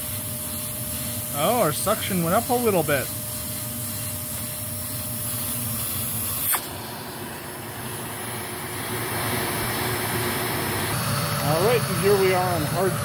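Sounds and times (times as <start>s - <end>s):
vacuum cleaner running: 0.0s - 13.0s
sharp pop of wand pulled free: 6.4s - 6.8s.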